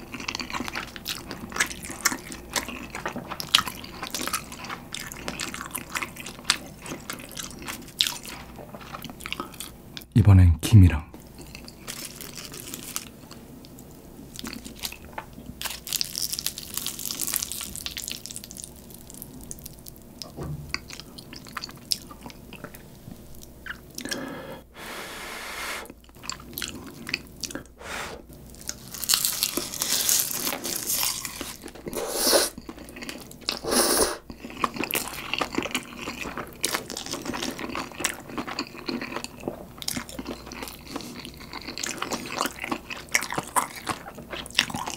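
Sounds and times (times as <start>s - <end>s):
noodles being chewed: 0.0s - 10.1s, 11.4s - 24.3s, 26.0s - 27.8s, 28.4s - 44.9s
seaweed crackling and crunching: 11.9s - 13.1s, 14.3s - 20.0s, 28.5s - 31.7s.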